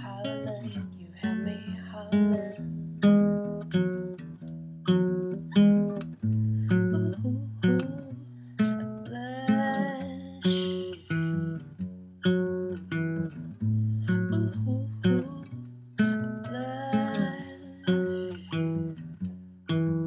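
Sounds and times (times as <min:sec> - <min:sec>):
woman singing wordless line: 0:00.0 - 0:02.6, 0:06.8 - 0:11.5, 0:14.2 - 0:15.5, 0:16.4 - 0:18.9
classical guitar fingerpicked chords: 0:00.0 - 0:20.0.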